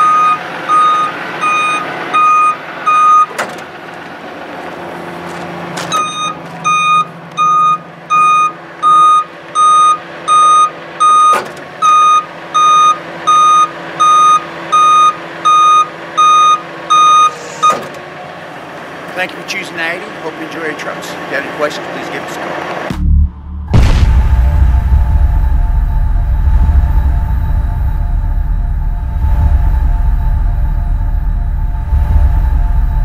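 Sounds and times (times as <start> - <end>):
truck warning beeper: 0.0 - 3.5, 5.9 - 18.0, 23.0 - 33.0
sharp clunks: 3.2 - 3.7, 17.5 - 18.0
low machine hum: 23.0 - 33.0.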